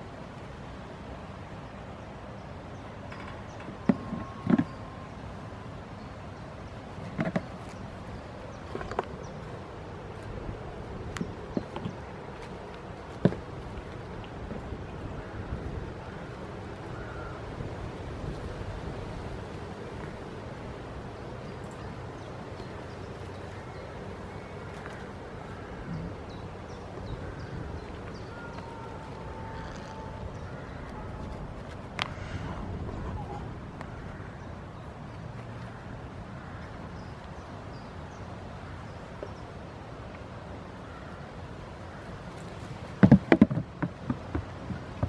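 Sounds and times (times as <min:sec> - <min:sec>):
steady outdoor hiss: 0:00.0 - 0:45.0
wind noise on microphone: 0:13.2 - 0:19.9, 0:27.0 - 0:34.3
goats butting heads: 0:42.4 - 0:45.0.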